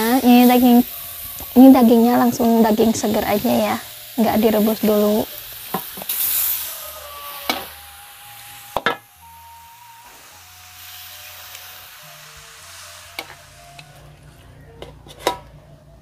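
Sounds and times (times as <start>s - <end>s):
food sizzling in a wok: 0.0s - 15.5s
soft background music: 7.0s - 16.0s.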